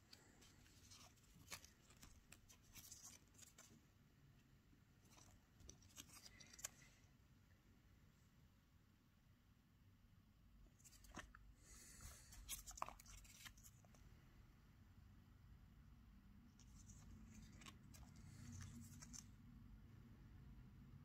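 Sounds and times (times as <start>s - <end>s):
paper rustling and crinkling: 0.0s - 3.8s, 5.0s - 7.0s, 10.7s - 14.0s, 16.6s - 19.4s.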